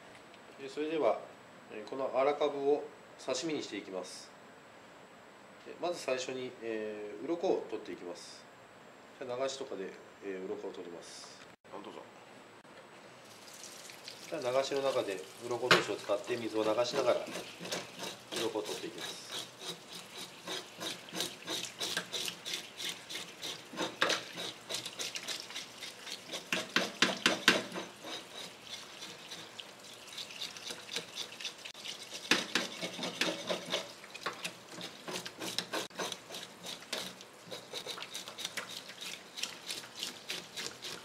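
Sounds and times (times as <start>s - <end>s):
fish scale remover scraping scales: 16.0s - 41.0s.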